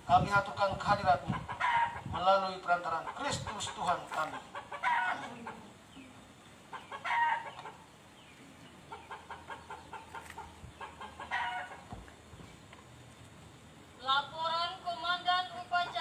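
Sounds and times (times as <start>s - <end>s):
chickens clucking: 0.1s - 13.0s, 15.6s - 16.0s.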